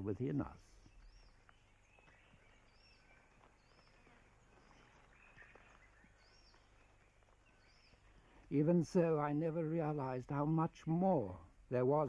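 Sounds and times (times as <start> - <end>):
soft bird chirps: 0.2 - 8.6.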